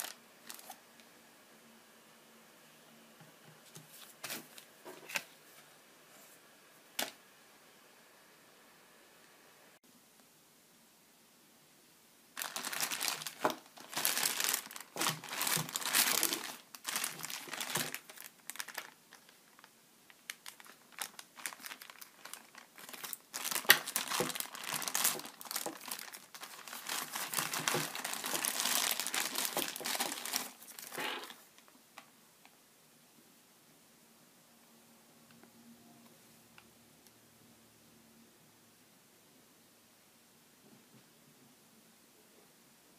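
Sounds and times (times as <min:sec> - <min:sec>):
plastic bags crinkling: 0:00.0 - 0:00.8, 0:12.4 - 0:31.5.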